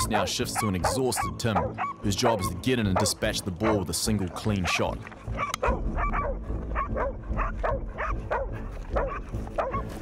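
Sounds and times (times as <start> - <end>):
dogs barking rapidly: 0.4 - 10.0
steady low rumble: 5.0 - 10.0.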